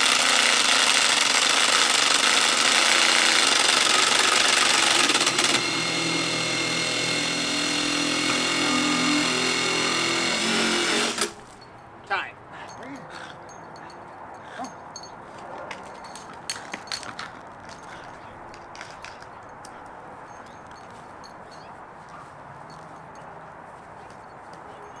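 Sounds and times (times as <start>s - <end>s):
impact driver whining: 0.0s - 11.4s.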